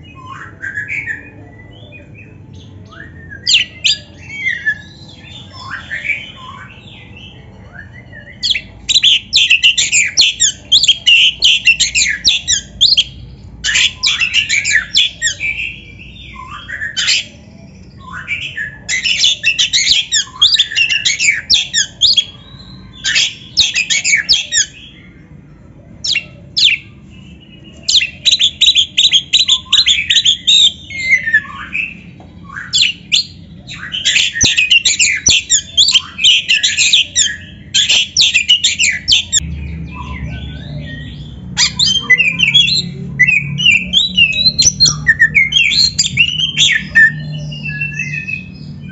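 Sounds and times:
songbird singing rapid high notes: 26.0s - 48.9s.

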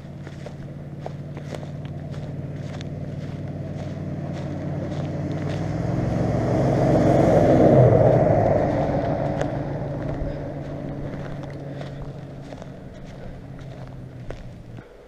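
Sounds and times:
pickup truck driving past: 0.0s - 14.8s.

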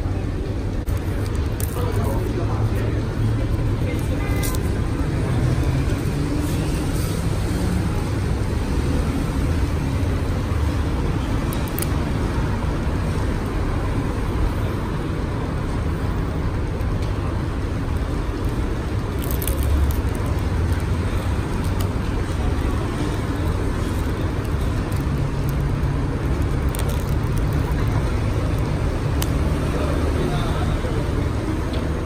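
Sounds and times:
road traffic rumble: 0.0s - 32.0s
plastic film crinkling: 19.1s - 20.9s, 23.9s - 28.6s.

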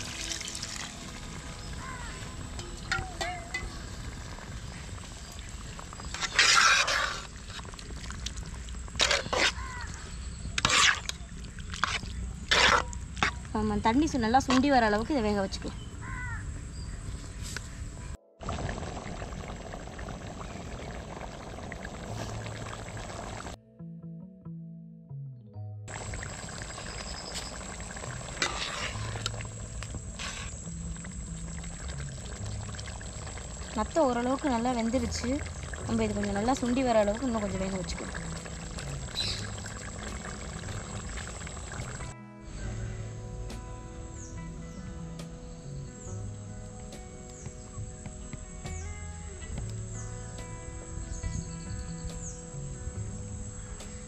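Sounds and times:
gravy bubbling in a pot: 0.0s - 13.6s, 18.4s - 23.6s, 25.9s - 42.1s
ladle stirring gravy in metal pot: 5.7s - 13.5s, 26.0s - 30.6s.

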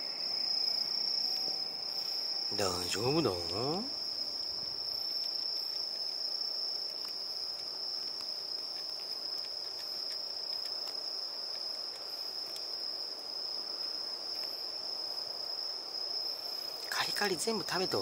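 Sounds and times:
high-pitched insect trill: 0.0s - 18.0s
cat crunching dry kibble: 4.7s - 12.8s.

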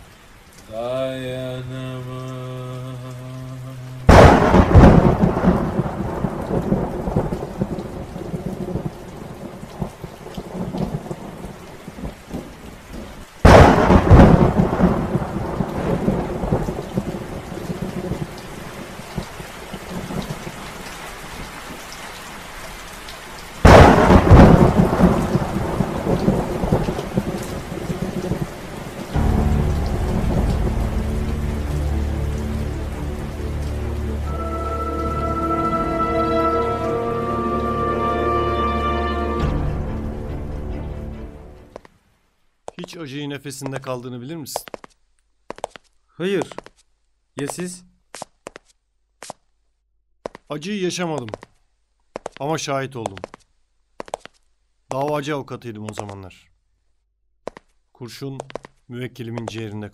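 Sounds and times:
steady rain: 0.0s - 46.8s, 50.3s - 56.3s
rumbling thunderclaps: 4.1s - 12.5s, 13.4s - 18.4s, 23.6s - 33.0s
held musical chord: 29.2s - 41.7s.

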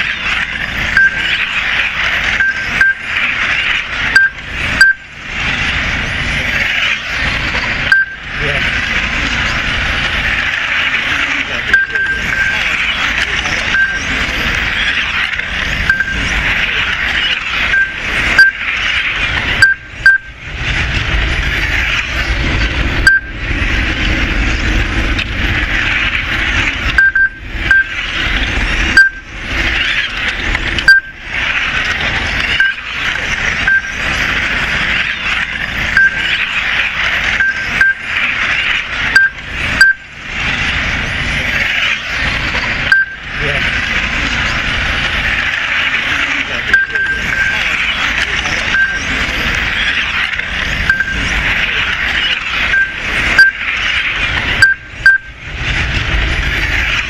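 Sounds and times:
electric motors whining: 0.0s - 57.0s
short high beeps: 1.0s - 1.2s, 2.4s - 3.0s, 4.2s - 5.0s, 7.9s - 8.2s, 11.7s - 12.6s, 13.7s - 14.0s, 15.9s - 16.2s, 17.7s - 18.6s, 19.6s - 20.3s, 23.1s - 23.3s, 27.0s - 27.9s, 29.0s - 29.3s, 30.9s - 31.2s, 33.7s - 33.9s, 36.0s - 36.2s, 37.4s - 38.0s, 39.2s - 40.0s, 42.9s - 43.2s, 46.7s - 47.6s, 48.7s - 49.0s, 50.9s - 51.2s, 52.7s - 53.6s, 54.6s - 55.4s.

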